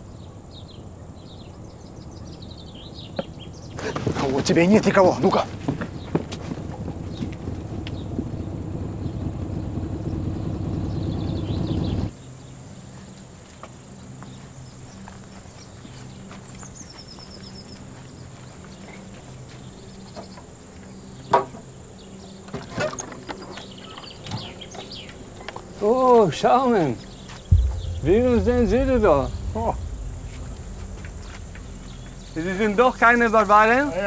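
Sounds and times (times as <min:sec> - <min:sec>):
birds chirping: 0:00.0 - 0:04.1
faint low engine hum: 0:00.0 - 0:34.0
vehicle engine approaching: 0:05.9 - 0:12.1, 0:27.5 - 0:34.0
sharp knock: 0:27.5 - 0:32.7.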